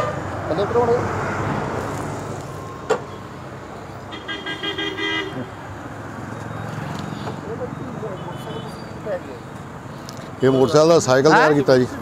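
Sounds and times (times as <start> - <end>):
street traffic: 0.0 - 12.0
vehicle horn: 4.1 - 5.6.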